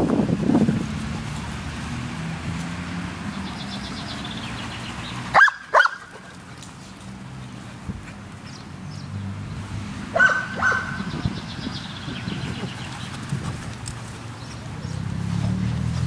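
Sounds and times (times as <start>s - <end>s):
dog barking: 5.3s - 6.1s, 10.2s - 11.1s.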